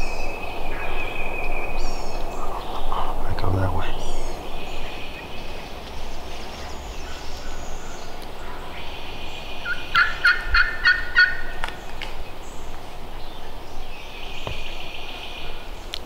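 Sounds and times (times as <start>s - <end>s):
turkey calling: 6.8s - 11.8s.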